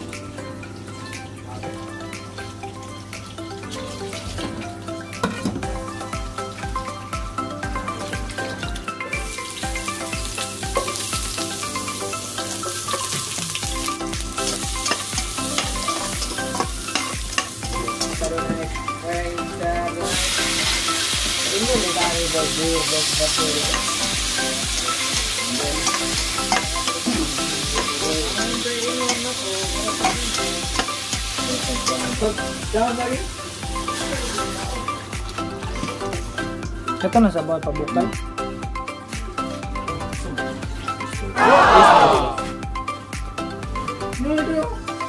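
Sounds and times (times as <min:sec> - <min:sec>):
food sizzling in oil: 0:00.0 - 0:37.1
background music beat: 0:00.0 - 0:45.0.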